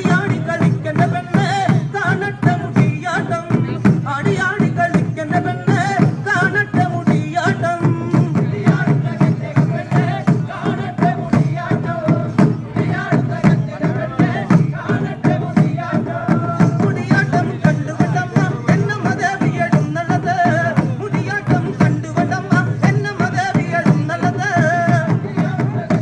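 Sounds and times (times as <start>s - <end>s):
drums beating fast rhythm: 0.0s - 26.0s
voices chanting: 8.4s - 19.6s.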